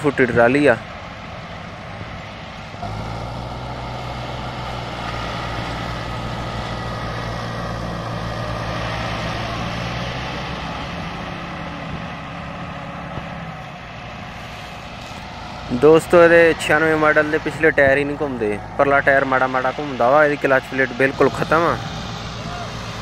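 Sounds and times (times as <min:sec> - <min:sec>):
tractor diesel engines under load: 0:00.0 - 0:23.0.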